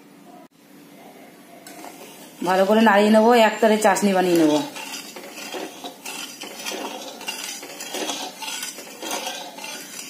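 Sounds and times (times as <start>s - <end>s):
metal spatula scraping metal pan: 3.7s - 10.0s.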